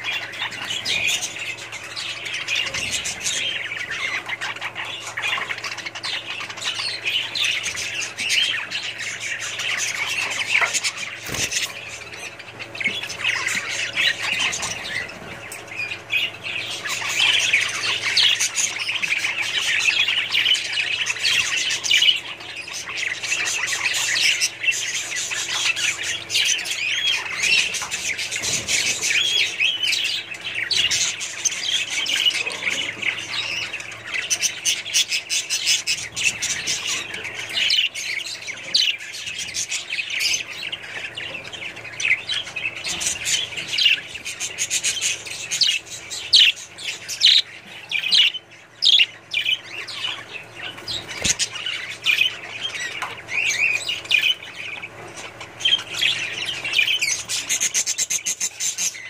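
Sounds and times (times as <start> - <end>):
budgerigars chirping and warbling: 0.0 - 59.0.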